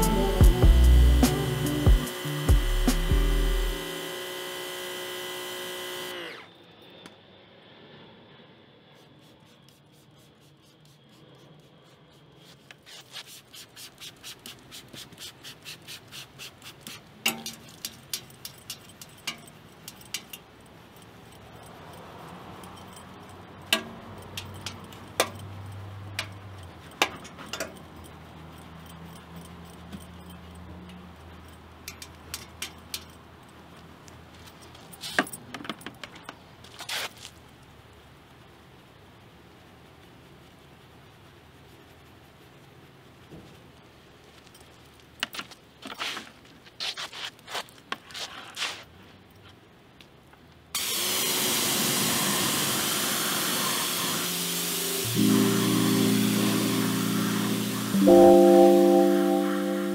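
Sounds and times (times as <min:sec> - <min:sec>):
brushes scrubbing metal: 0:08.9 - 0:20.4
keys jangling: 0:17.2 - 0:36.5.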